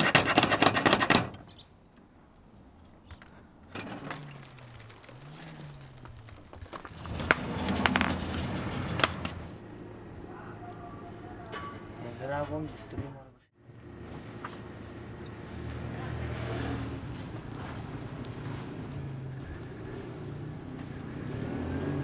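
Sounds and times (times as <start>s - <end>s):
door hinges creaking: 3.2s - 9.1s.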